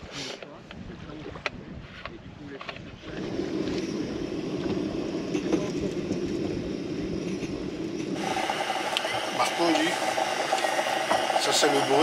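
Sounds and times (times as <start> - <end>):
gas stove roaring: 3.0 - 12.0.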